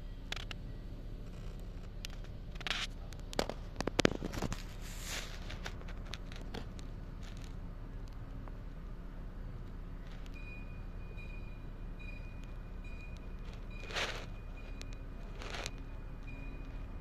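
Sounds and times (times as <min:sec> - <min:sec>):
low hum: 0:00.0 - 0:17.0
short rustles: 0:04.0 - 0:06.5.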